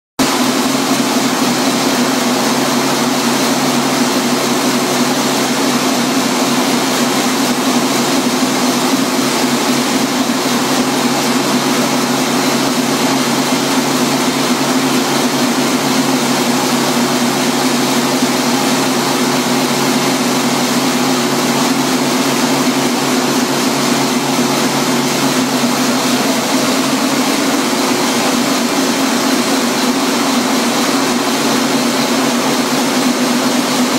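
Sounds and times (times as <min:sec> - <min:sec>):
engine generator running: 0:00.2 - 0:33.9.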